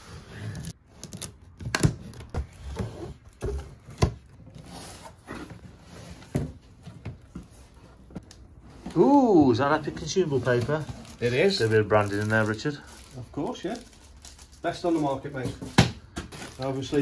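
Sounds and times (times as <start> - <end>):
cardboard knocks and scrapes: 1.6 - 11.3.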